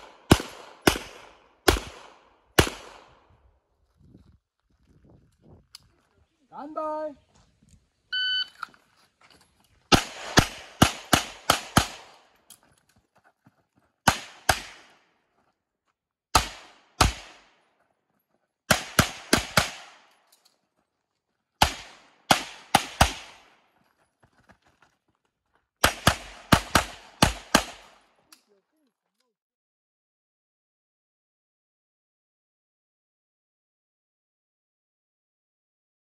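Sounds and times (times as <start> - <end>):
handgun shots with echo: 0.0 - 3.2.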